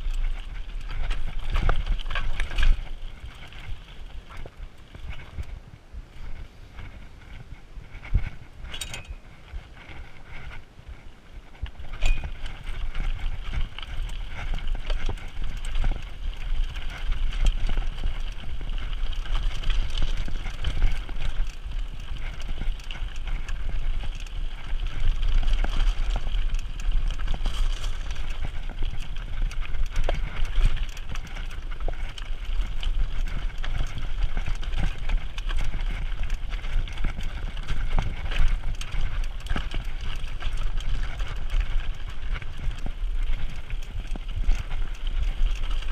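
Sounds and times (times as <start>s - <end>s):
bike rattling and clicking: 0.0s - 45.9s
wind buffeting microphone: 0.0s - 45.9s
tyres crunching on gravel: 11.4s - 45.9s.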